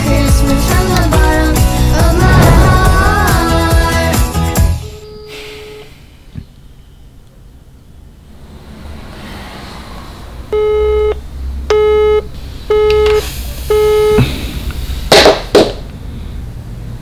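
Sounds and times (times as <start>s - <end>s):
phone busy signal beeps: 4.8s - 5.9s, 10.5s - 14.2s.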